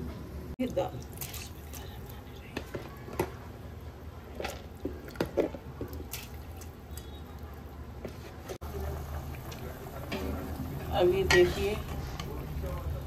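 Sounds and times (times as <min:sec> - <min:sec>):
lentils plopping into water: 0:01.0 - 0:01.9, 0:04.4 - 0:07.2.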